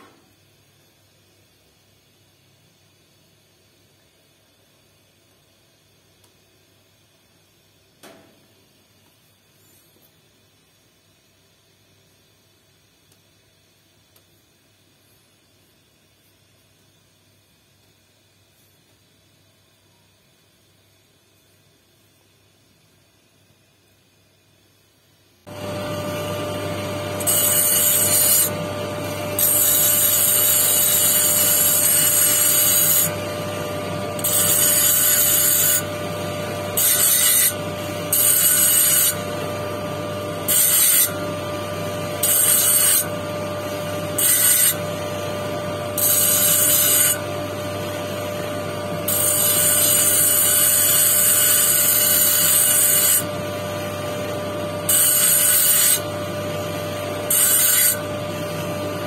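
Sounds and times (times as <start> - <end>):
electric motor humming: 25.5 - 59.0
stone grinding on spinning disc: 25.6 - 39.5, 42.1 - 43.1, 44.0 - 44.9, 46.0 - 47.3, 49.1 - 53.3, 54.9 - 56.1, 57.3 - 58.1.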